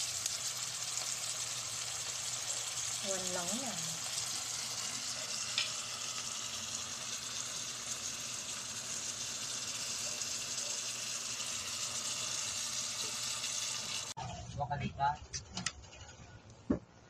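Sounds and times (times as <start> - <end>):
food sizzling in a pot: 0.0 - 14.2.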